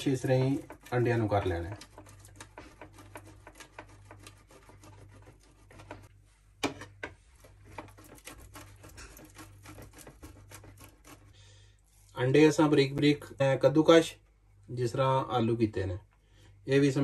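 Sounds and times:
egg scraping on grater: 0.0 - 6.1, 7.3 - 12.2.

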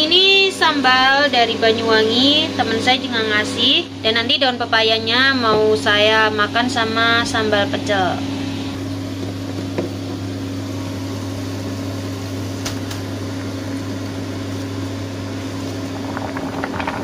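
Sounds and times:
electrical hum: 0.0 - 17.0
fan noise: 0.0 - 17.0.

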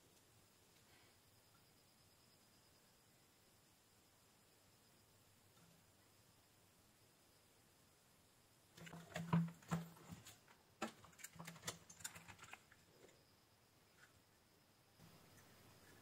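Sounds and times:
small clicks and knocks of gear: 8.8 - 13.2.

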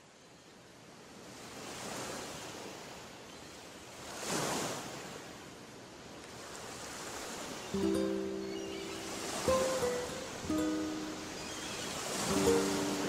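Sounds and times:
rushing surf-like noise: 6.3 - 13.0.

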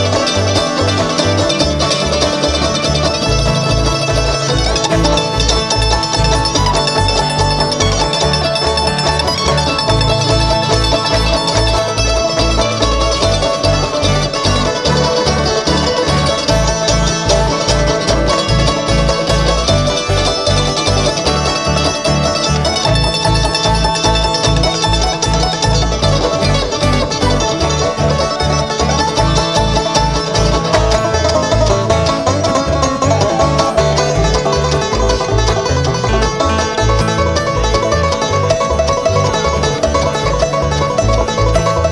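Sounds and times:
guitar: 0.0 - 41.9
plucked banjo: 0.0 - 41.9
pulsing bass line: 0.0 - 41.9.

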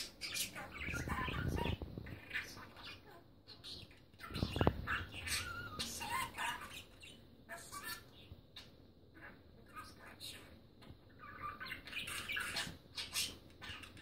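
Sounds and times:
budgerigar chattering and chirping: 11.1 - 14.0.

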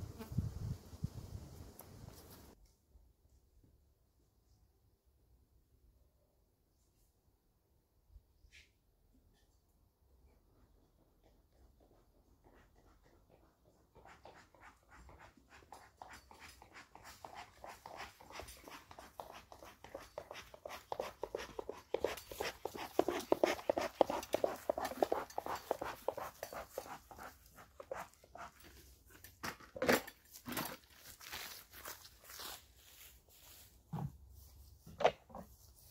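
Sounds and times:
dog panting: 12.3 - 28.6.

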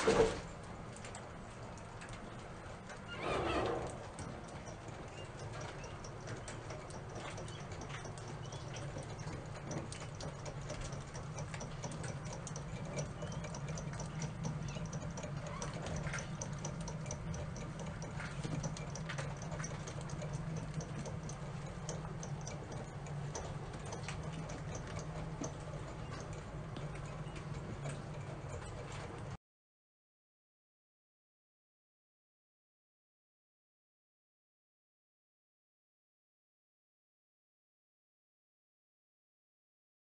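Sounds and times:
rapid light ticking: 0.5 - 3.1, 3.9 - 29.4
steady low hum: 3.7 - 29.4.

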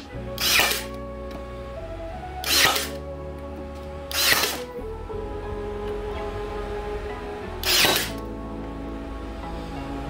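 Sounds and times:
background music with sustained tones: 0.0 - 10.0
nailer firing into wood: 0.4 - 0.9, 2.4 - 3.0, 4.1 - 4.6, 7.6 - 8.2.

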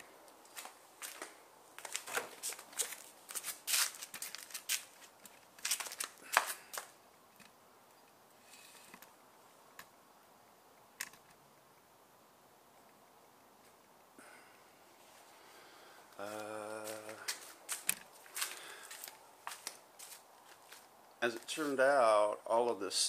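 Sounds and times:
irregular sharp clicks and taps: 11.0 - 11.4.

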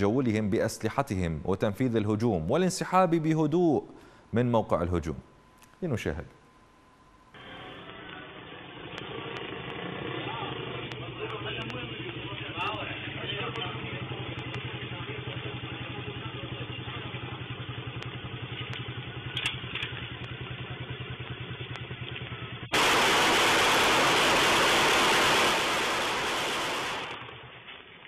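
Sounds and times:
motorcycle engine idling: 7.4 - 22.8
harsh rush of noise: 22.7 - 27.6.

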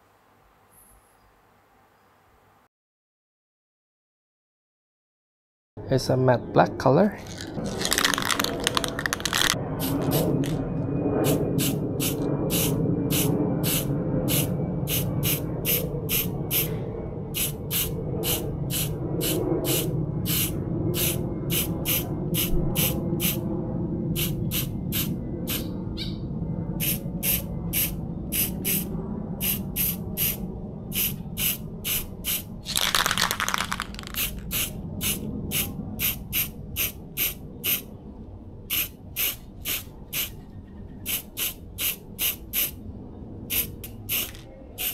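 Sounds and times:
spray can ball rattling: 7.2 - 10.6, 31.0 - 37.8, 43.5 - 44.9.

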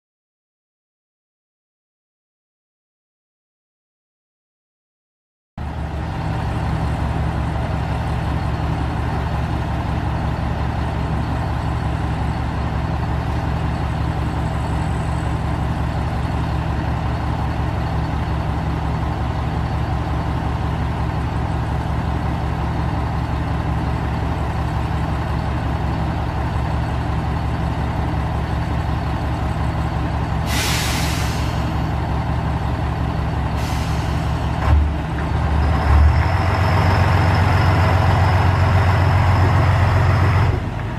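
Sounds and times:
railcar diesel engine idling: 5.6 - 40.9
compressed air hissing: 30.5 - 31.8.

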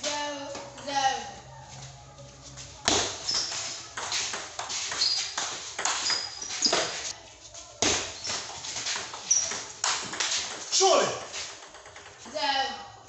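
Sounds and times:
table tennis ball knocking: 8.9 - 12.4.

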